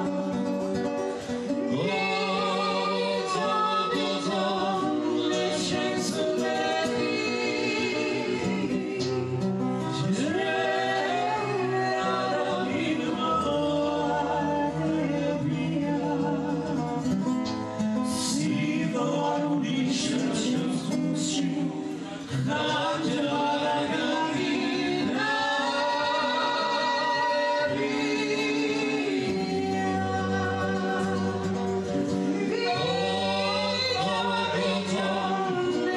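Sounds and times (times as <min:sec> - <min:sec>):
acoustic guitar: 0:00.0 - 0:35.9
woman singing into a microphone: 0:00.0 - 0:35.9.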